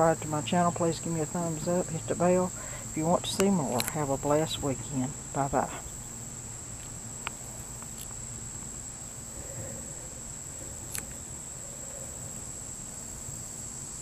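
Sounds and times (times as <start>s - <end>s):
crickets trilling: 0.0s - 14.0s
small ticks: 2.6s - 4.0s, 6.7s - 12.6s.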